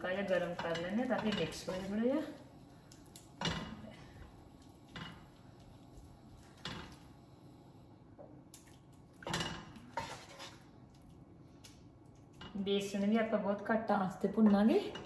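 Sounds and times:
utensil clattering in a pan: 0.1 - 2.1.

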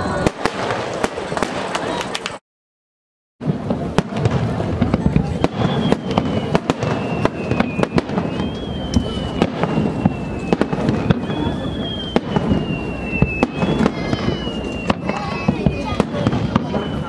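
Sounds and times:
fireworks bangs and crackles: 0.0 - 2.4, 3.4 - 17.0
descending firework whistle: 5.0 - 17.0.

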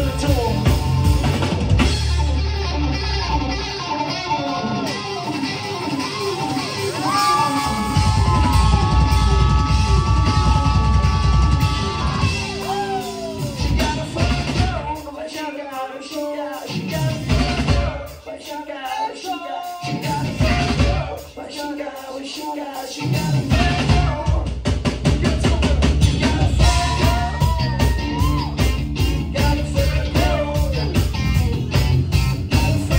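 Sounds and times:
person singing lead vocal: 0.0 - 0.9, 6.4 - 31.7, 32.3 - 32.9
funk band playing: 0.0 - 32.9.

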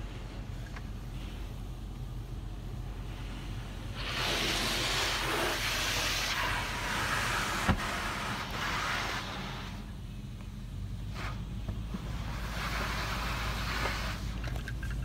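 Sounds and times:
steady low hum: 0.0 - 15.0
high-pressure water spray hissing: 3.0 - 9.9, 11.0 - 14.4.

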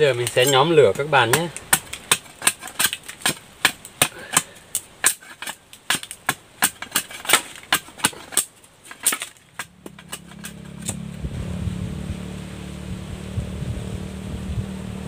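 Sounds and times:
machete chopping sticks: 0.0 - 11.2
low steady hum: 0.0 - 15.0.

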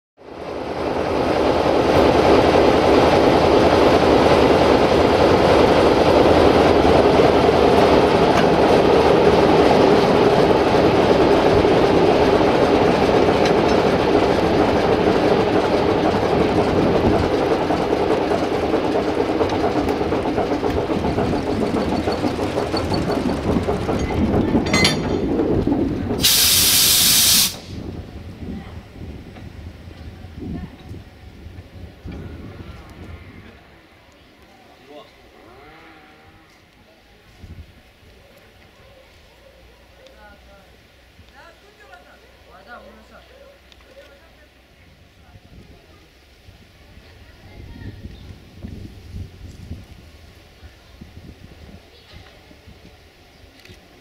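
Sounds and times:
locomotive engine running: 0.2 - 33.7
air hiss burst: 26.2 - 27.8.

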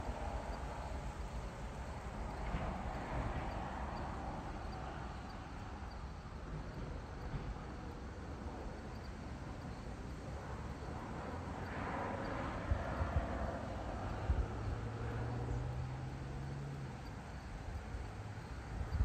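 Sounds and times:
low engine hum: 0.0 - 19.0
distant vehicle passing: 10.2 - 19.0.

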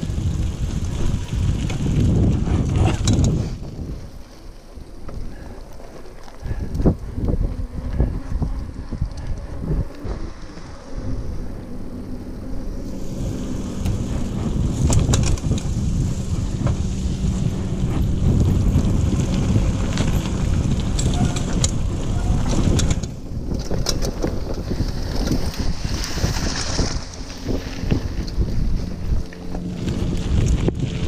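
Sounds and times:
bike clattering over bumps: 0.0 - 10.9, 13.3 - 31.0
tyres rumbling on dirt trail: 0.0 - 31.0
wind on microphone: 0.0 - 31.0.

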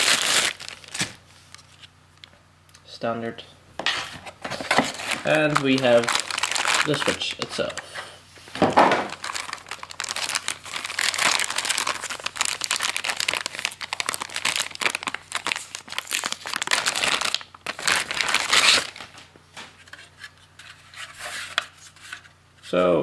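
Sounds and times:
plastic bag crinkling: 0.0 - 1.8, 4.6 - 7.8, 8.8 - 19.2.

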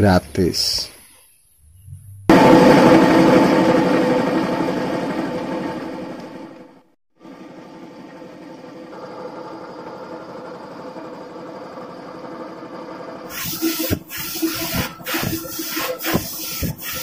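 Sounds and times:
air compressor running: 2.3 - 6.6, 7.5 - 17.0
spray gun hissing bursts: 13.3 - 17.0.

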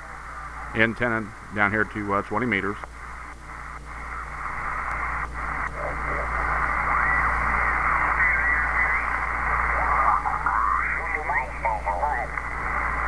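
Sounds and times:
radio band noise hiss: 0.0 - 13.0
garbled radio voices: 0.5 - 13.0
sliding radio whistles: 3.6 - 11.9.

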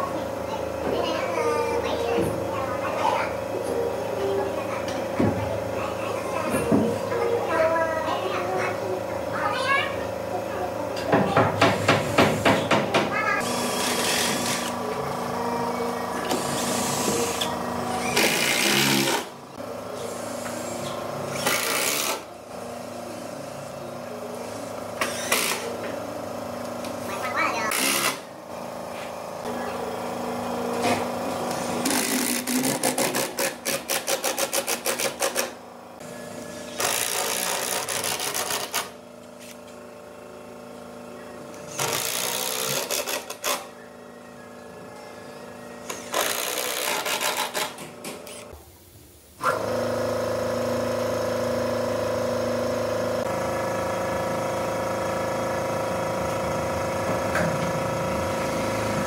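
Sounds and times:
power tool motor running: 13.4 - 19.3, 20.0 - 22.3, 24.6 - 25.8, 27.7 - 28.2, 30.6 - 35.6, 36.4 - 39.6, 41.7 - 43.7, 45.9 - 47.7, 49.4 - 59.0
power tool rapid strokes: 36.8 - 38.9.

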